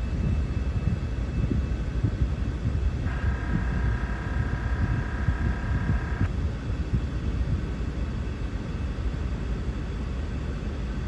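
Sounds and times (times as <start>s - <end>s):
low rumble: 0.0s - 7.6s.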